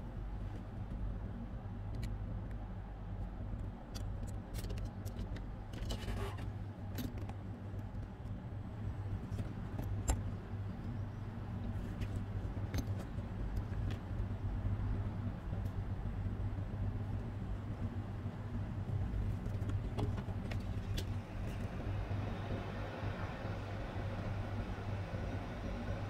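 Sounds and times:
steady low hum: 0:06.4 - 0:26.0.

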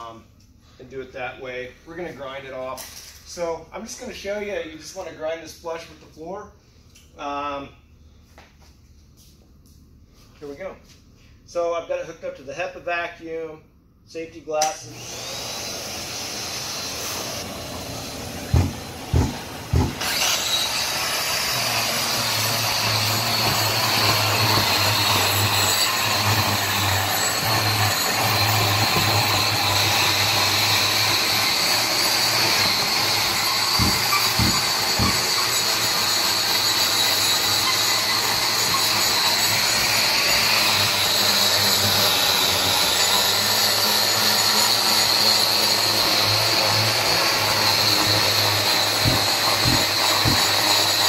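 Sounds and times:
angle grinder grinding concrete: 0:14.9 - 0:51.0.

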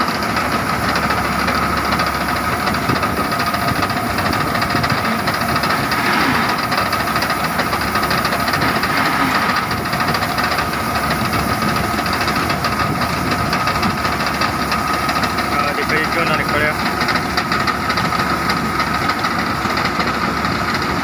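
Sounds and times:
combine harvester engine drone: 0:00.0 - 0:21.0
grain pouring with rushing hiss: 0:04.0 - 0:13.8.

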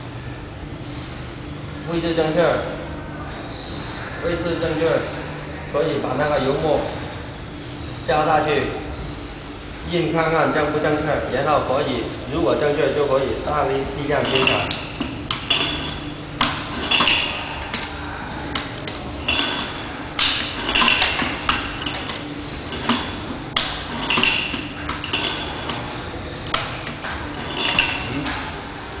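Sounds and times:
printing machine metal clacks: 0:14.0 - 0:18.0.

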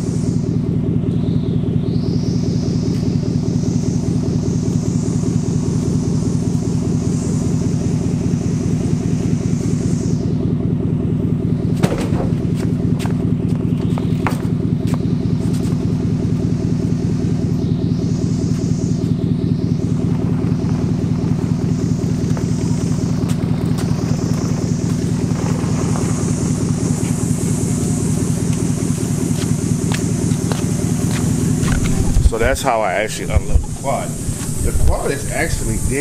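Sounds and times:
vehicle engine running: 0:00.0 - 0:36.0
sharp knocks and clanks: 0:11.8 - 0:13.2.

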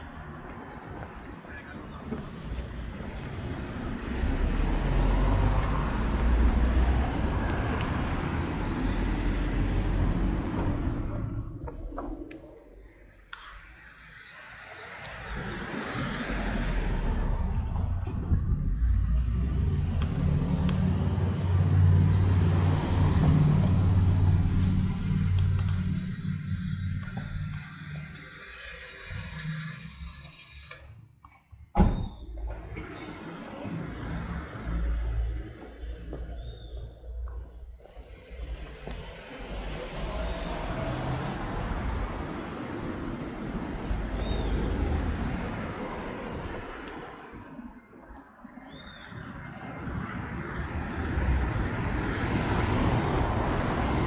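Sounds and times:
traffic: 0:00.0 - 0:54.0
car engine rumble: 0:15.3 - 0:30.1.

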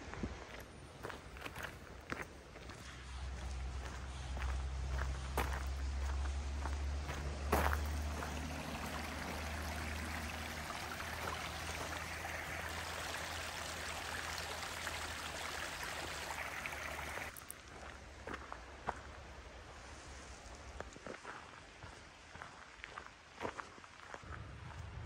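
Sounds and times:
stream water rushing: 0:06.5 - 0:17.6
low rumble: 0:24.3 - 0:25.0.

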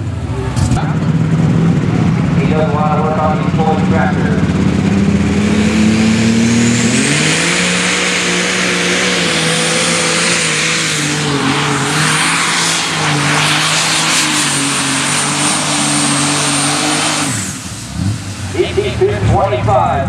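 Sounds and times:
diesel engine running flat out: 0:00.0 - 0:20.0.

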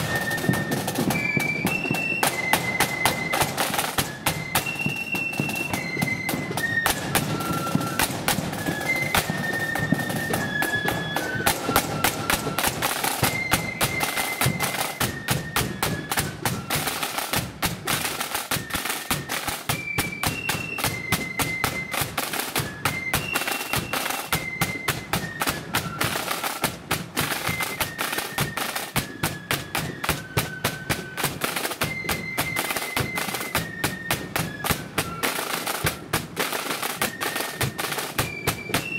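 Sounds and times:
high flute melody: 0:00.0 - 0:38.9
rapid snare drumming: 0:00.0 - 0:38.9.

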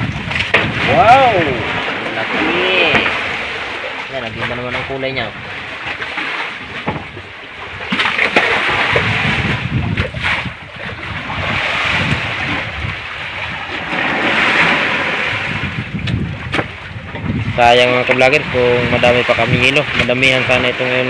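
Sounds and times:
sea water splashing around boat: 0:00.0 - 0:21.0
wind on microphone: 0:00.0 - 0:21.0
sharp knocks: 0:06.8 - 0:07.1.

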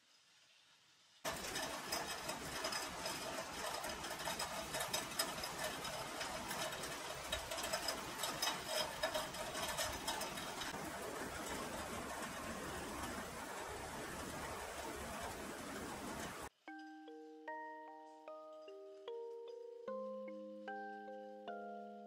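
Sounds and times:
rain pattering: 0:01.2 - 0:16.7.

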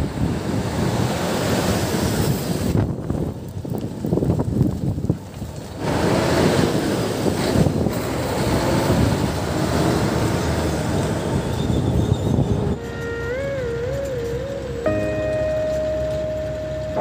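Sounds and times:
heavy trucks passing: 0:00.0 - 0:03.4, 0:04.8 - 0:17.0
wind on microphone: 0:00.0 - 0:15.0
music with wavering held tones: 0:12.8 - 0:17.0.

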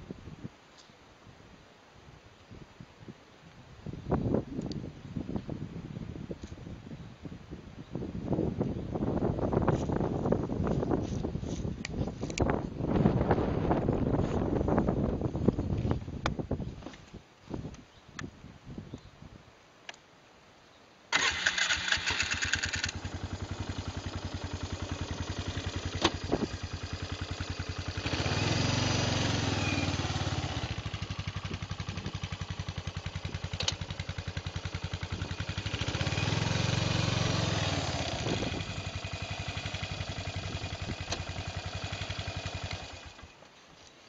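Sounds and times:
quad engine starting and idling: 0:21.1 - 0:43.3
engine revving: 0:21.2 - 0:43.2.

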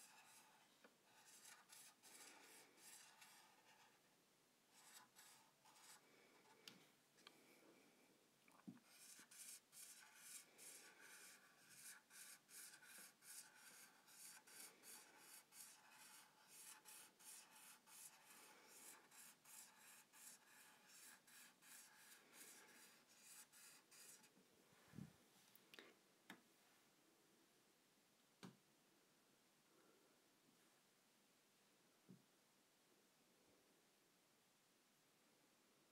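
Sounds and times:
marker scratching on whiteboard: 0:00.0 - 0:04.1, 0:04.7 - 0:06.6, 0:08.8 - 0:24.3.

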